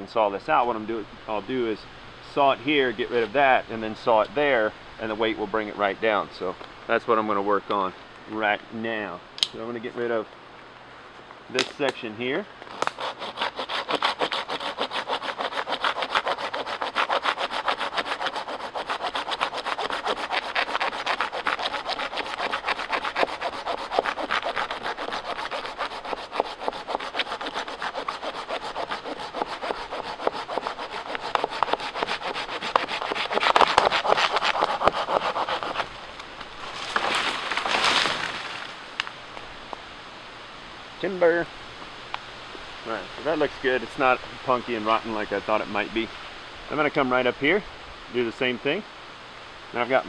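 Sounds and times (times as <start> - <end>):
handsaw cutting wood: 12.7 - 35.9
branch falling with rustling crash: 36.0 - 39.5.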